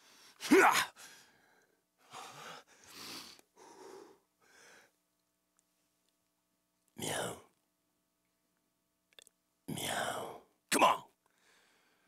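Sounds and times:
man's vocal cry: 0.4s - 1.0s.

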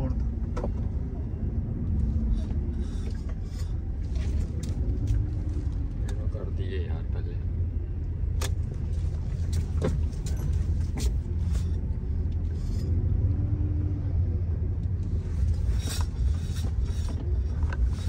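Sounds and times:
truck engine and road rumble: 0.0s - 18.0s.

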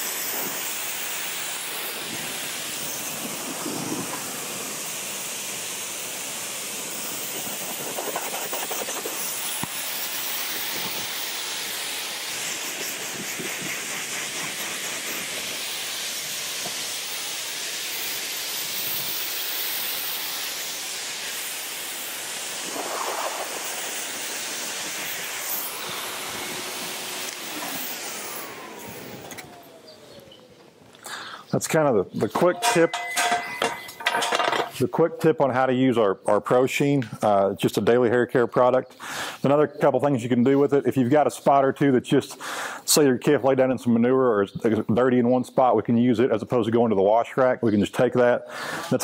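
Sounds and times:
motor winding down whine: 0.0s - 30.9s
livestock blower blowing air: 0.0s - 34.8s, 38.6s - 43.5s, 48.4s - 49.0s.

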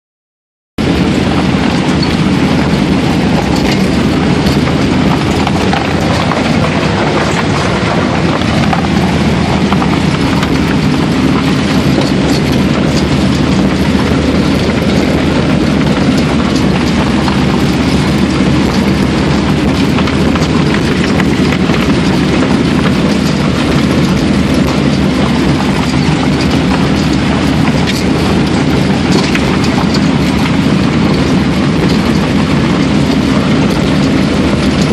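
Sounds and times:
vehicle engine drone: 0.8s - 34.9s.

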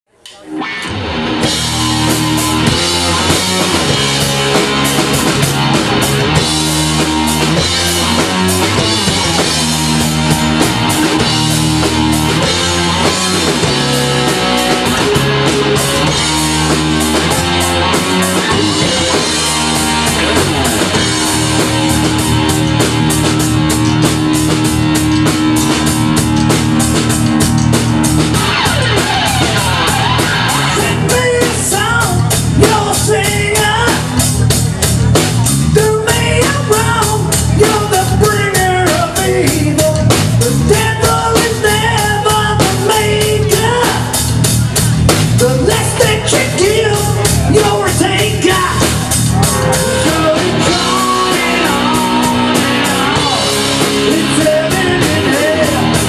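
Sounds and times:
electric guitars and bass riff: 0.1s - 56.0s
drum kit steady beat: 1.0s - 56.0s.

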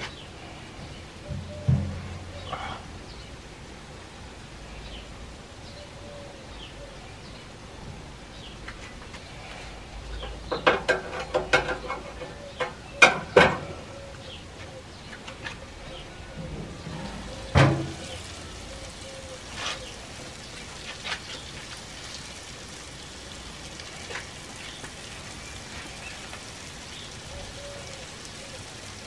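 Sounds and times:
metal utensils knocking on grill: 1.3s - 2.3s, 10.2s - 13.7s, 16.4s - 18.2s.

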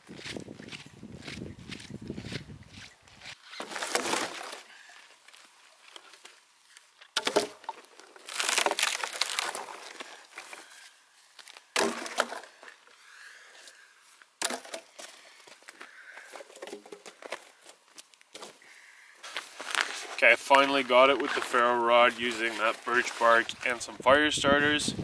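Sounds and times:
wood splintering crunch: 0.2s - 4.7s, 7.1s - 10.6s, 11.4s - 12.5s
wood knocking and cracking: 7.1s - 7.8s.

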